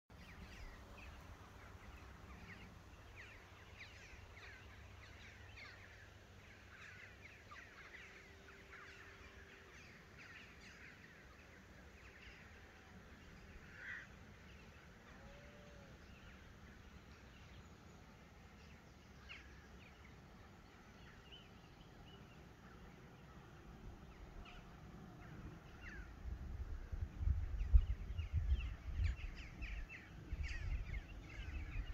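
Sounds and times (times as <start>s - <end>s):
low steady rumble: 16.0s - 31.9s.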